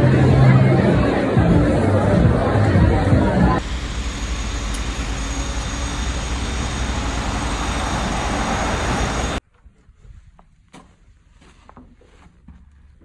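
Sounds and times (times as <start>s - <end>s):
city street traffic: 0.0s - 9.4s.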